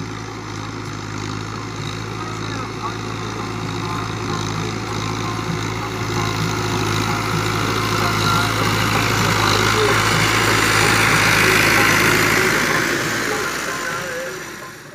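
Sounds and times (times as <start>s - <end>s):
tractor diesel engine under load: 0.0s - 14.9s.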